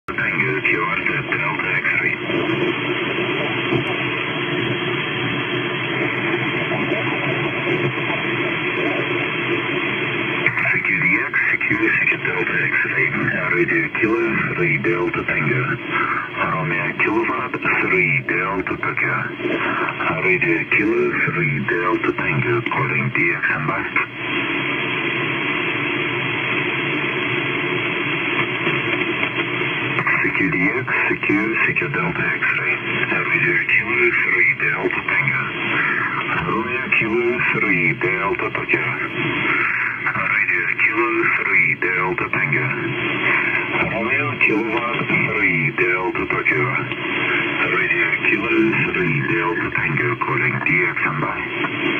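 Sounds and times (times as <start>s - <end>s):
radio static hiss: 0.0s - 51.9s.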